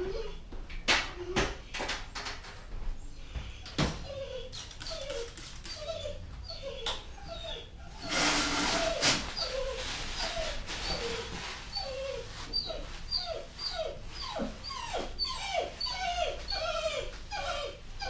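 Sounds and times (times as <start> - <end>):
dog whimpering: 0.0 - 0.4, 4.0 - 18.0.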